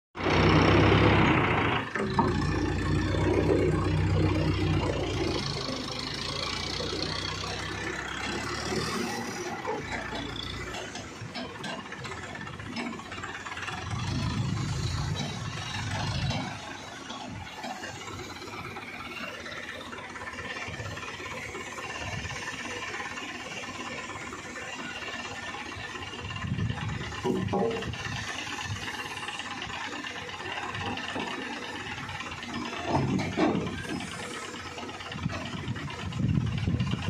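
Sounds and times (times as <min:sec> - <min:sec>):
diesel crane engine running: 0:00.2 - 0:37.0.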